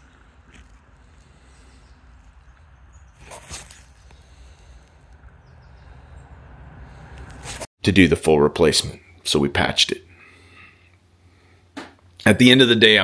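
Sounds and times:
steady low rumble: 0:03.8 - 0:07.7.

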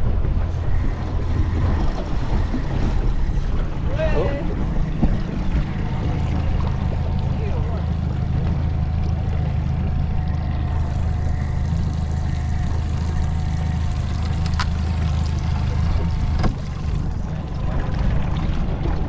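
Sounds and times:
wind noise: 0:00.0 - 0:07.0
outboard motor running: 0:00.0 - 0:19.0
water wash: 0:00.0 - 0:19.0.

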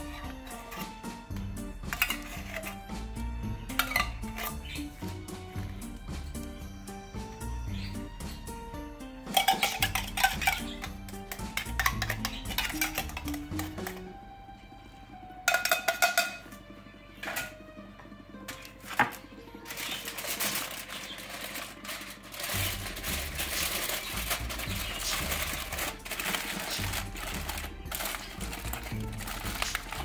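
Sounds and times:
background music with bass: 0:00.0 - 0:20.2, 0:20.9 - 0:30.0
spoon clinking against a can: 0:01.8 - 0:02.8, 0:03.7 - 0:04.8, 0:09.3 - 0:14.0, 0:15.5 - 0:16.5
aluminium foil crinkling: 0:01.9 - 0:02.8, 0:19.6 - 0:30.0.

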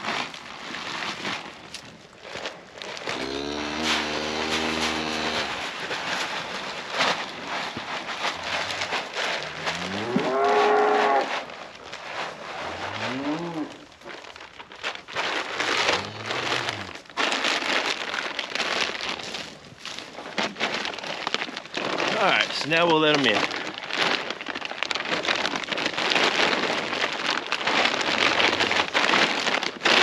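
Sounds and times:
steady crackling noise: 0:00.0 - 0:30.0
cows mooing: 0:03.1 - 0:05.6, 0:09.4 - 0:11.3.

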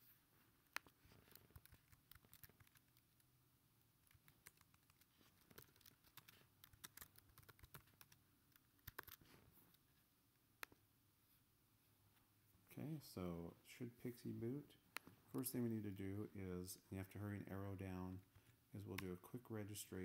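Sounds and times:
faint keyboard typing: 0:00.6 - 0:03.3, 0:04.0 - 0:09.8.

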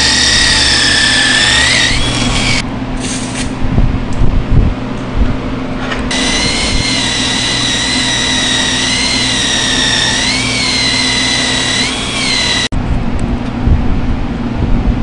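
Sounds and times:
rotary grinder buffing rubber: 0:00.0 - 0:02.6, 0:06.1 - 0:12.7.

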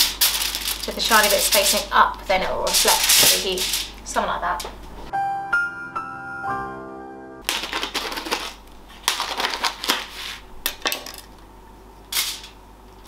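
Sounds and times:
plastic packaging crinkling: 0:00.0 - 0:04.0, 0:07.4 - 0:11.3.

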